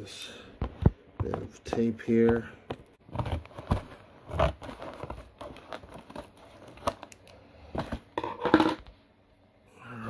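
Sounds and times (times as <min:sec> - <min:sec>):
tape and cardboard crinkling: 0:03.1 - 0:08.0.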